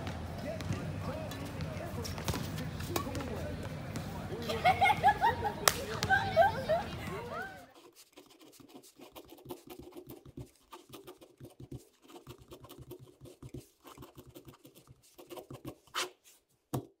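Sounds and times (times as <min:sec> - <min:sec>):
pen scratching on paper: 0:07.6 - 0:16.4.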